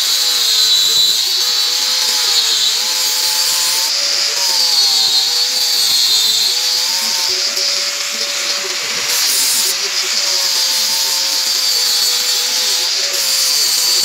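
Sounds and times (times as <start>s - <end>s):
angle grinder grinding metal: 0.0s - 14.0s.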